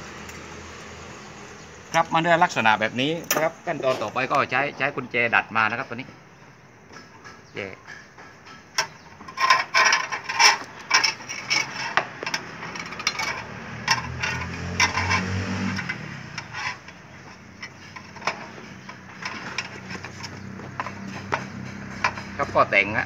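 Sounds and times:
metal clicks and clatter of steel: 7.2s - 22.4s.

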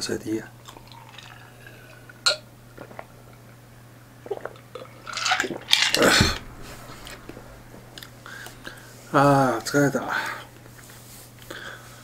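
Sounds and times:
sipping and swallowing: 2.8s - 3.6s, 4.2s - 8.5s.

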